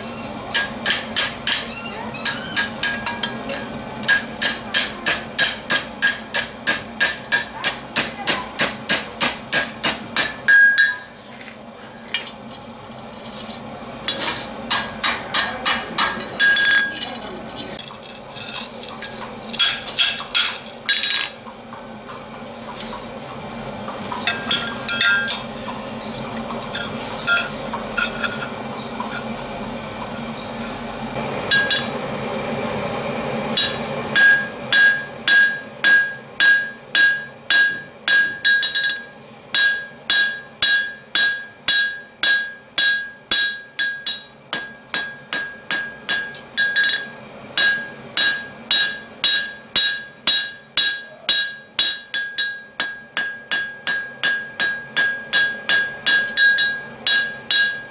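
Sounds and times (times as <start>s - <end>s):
hammer striking steel on anvil: 0.5s - 11.1s, 14.1s - 17.2s, 24.2s - 25.8s, 31.5s - 31.9s, 33.5s - 57.9s.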